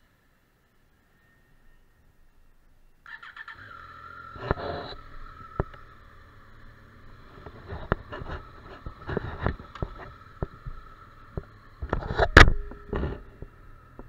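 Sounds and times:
motorcycle engine starting and idling: 3.0s - 14.0s.

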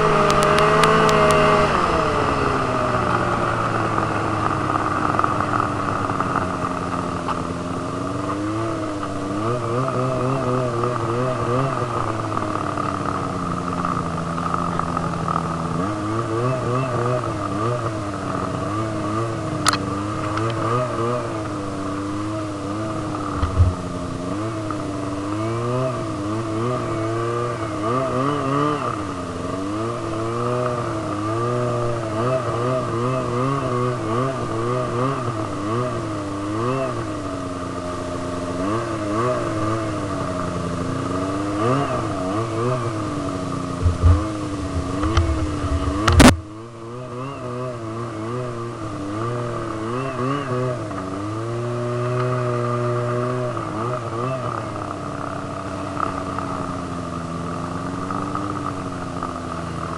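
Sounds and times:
snowmobile engine revving: 0.0s - 59.9s
high whine: 41.9s - 47.2s
sharp knocks: 43.8s - 46.4s.

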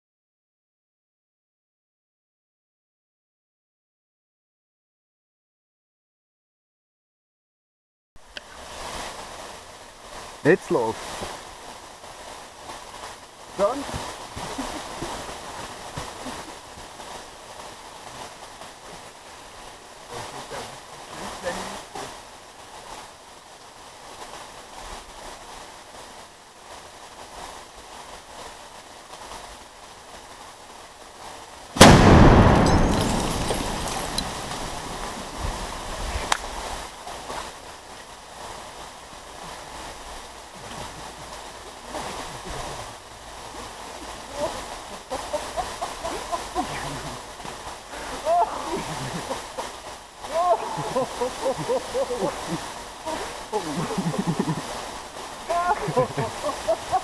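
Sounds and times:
explosion rumble: 31.8s - 35.9s
wind on microphone: 33.5s - 37.6s.

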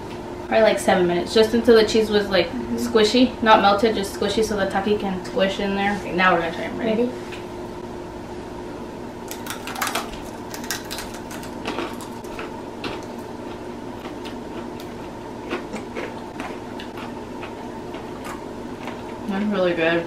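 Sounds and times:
faint steady hum: 0.0s - 20.0s
crunching and chewing chips: 9.3s - 19.3s.

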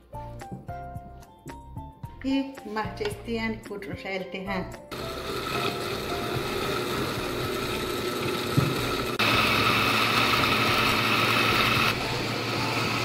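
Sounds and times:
blender running: 4.9s - 13.0s.

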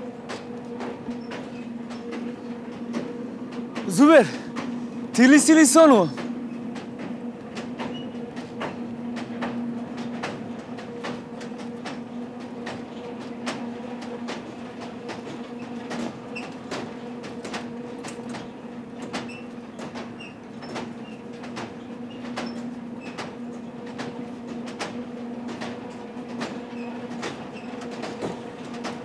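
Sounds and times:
carousel low hum: 0.0s - 15.5s
rattle of clicks and knocks: 23.9s - 29.0s.

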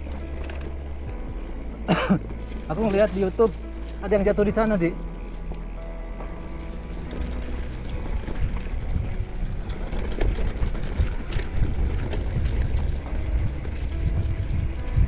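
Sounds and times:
bike clicks and knocks: 0.0s - 1.3s, 7.0s - 15.0s
mountain bike rolling on dirt: 0.0s - 15.0s
wind buffeting microphone: 2.6s - 15.0s.

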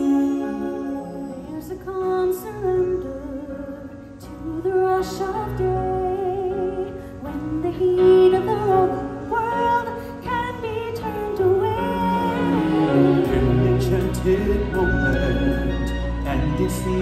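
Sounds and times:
woman singing with vibrato: 0.0s - 14.5s
backing music: 7.5s - 17.0s.

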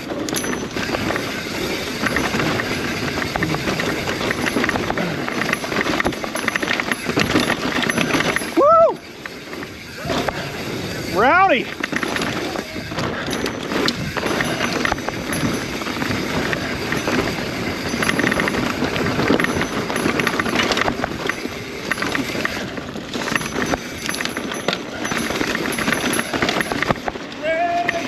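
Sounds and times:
bike rattling: 0.0s - 28.0s
bike tyres rumbling on rocks: 0.0s - 28.0s.

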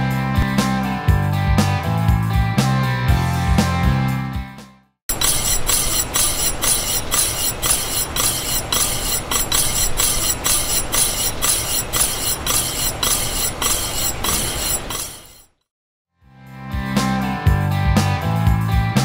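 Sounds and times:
brake rotor scraping pads: 5.1s - 15.6s.

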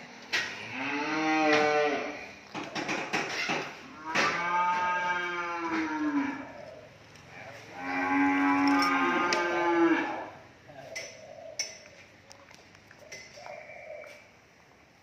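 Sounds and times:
cattle mooing: 0.5s - 2.3s, 3.8s - 6.8s, 7.6s - 10.4s.

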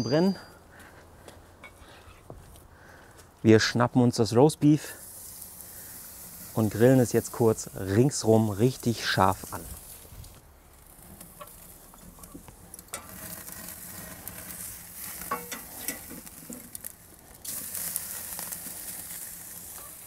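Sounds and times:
meat sizzling on a grill: 4.8s - 20.0s.

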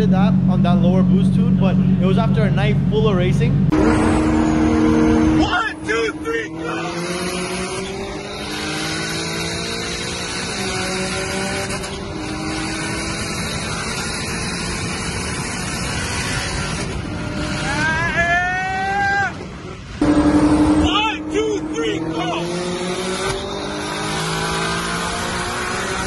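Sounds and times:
car engines accelerating: 0.0s - 26.0s
wind and road noise: 0.0s - 26.0s
loud sharply rising tone: 3.4s - 26.0s.

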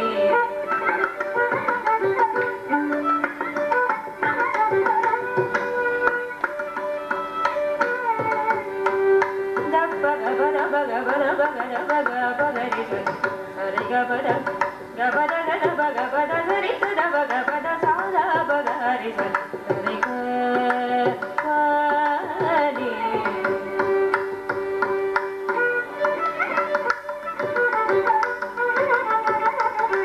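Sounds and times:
violin melody: 0.0s - 30.0s
woman singing: 9.6s - 24.3s.

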